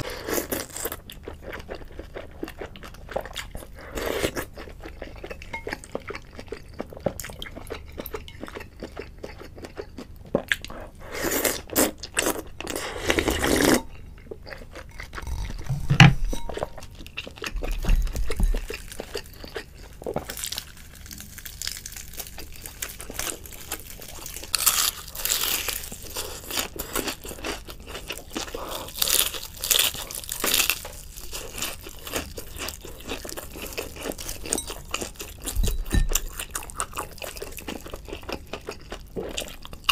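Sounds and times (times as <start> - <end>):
chewing: 0.0 - 39.9
dull thump: 15.6 - 16.4
crunchy bites: 18.4 - 27.6.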